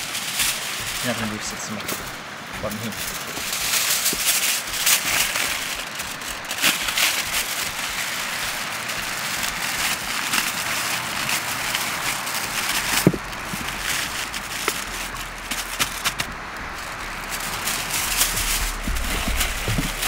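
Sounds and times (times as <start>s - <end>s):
aluminium foil crinkling: 0.0s - 20.0s.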